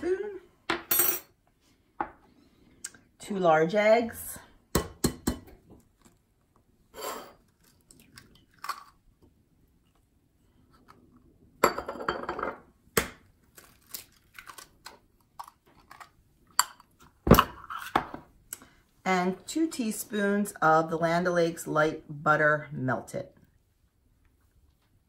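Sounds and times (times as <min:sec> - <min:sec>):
eggshell crunching: 0:07.4 - 0:10.0, 0:13.4 - 0:17.0.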